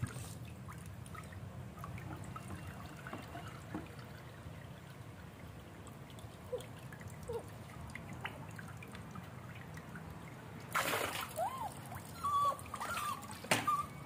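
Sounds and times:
water dripping into metal basin: 0.5 - 13.0
water splash: 10.0 - 12.0
puppy whimper: 11.3 - 14.0.

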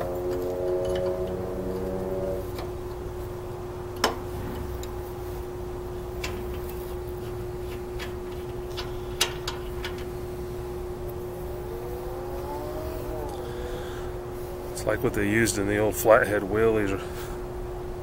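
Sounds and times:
faint rising-pitch sounds: 0.0 - 2.9, 10.9 - 15.2
low rumble: 0.0 - 3.2, 10.1 - 15.2
steady hum: 0.0 - 18.0.

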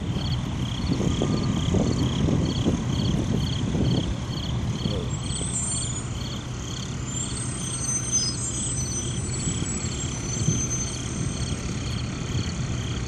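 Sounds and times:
trucks driving past: 0.0 - 13.0
high chirp: 4.8 - 12.6.

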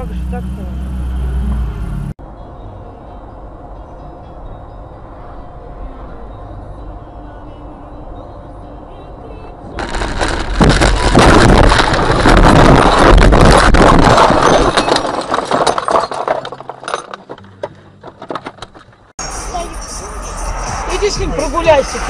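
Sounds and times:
glass breaking: 9.8 - 17.3
vehicle crash impact: 9.8 - 17.5
debris clattering and clinking: 9.8 - 19.0.

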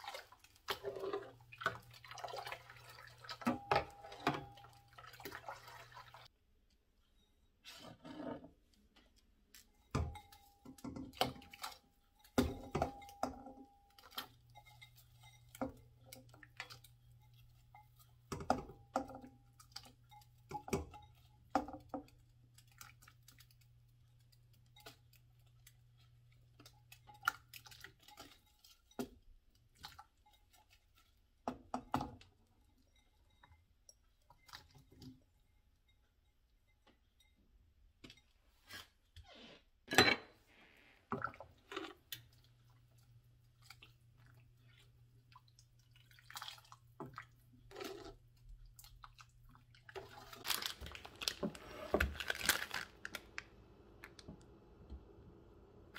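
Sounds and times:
bowl tapping metal pot: 3.3 - 5.0, 9.8 - 22.2.

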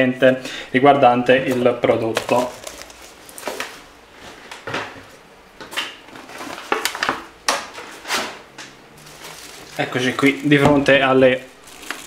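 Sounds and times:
plastic rustling: 1.3 - 4.0, 6.1 - 7.2, 9.0 - 12.0
packaging knocks and clatters: 1.5 - 3.8, 9.1 - 12.0.

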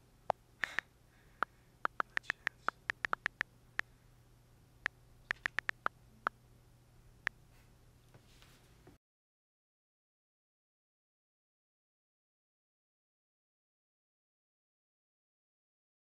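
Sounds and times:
touchscreen keyboard ticks: 1.9 - 3.4, 5.3 - 5.9.

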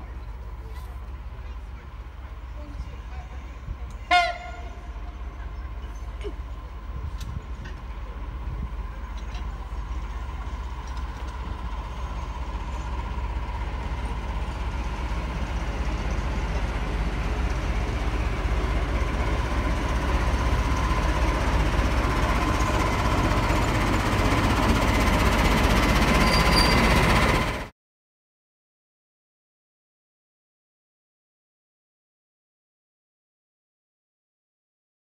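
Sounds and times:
diesel locomotive engine: 0.0 - 27.7.

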